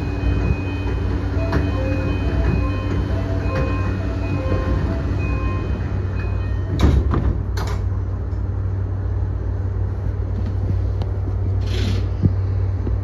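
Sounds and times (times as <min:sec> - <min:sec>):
train doors closing: 0:00.0 - 0:08.6, 0:11.5 - 0:12.2
train electrical hum: 0:00.0 - 0:13.0.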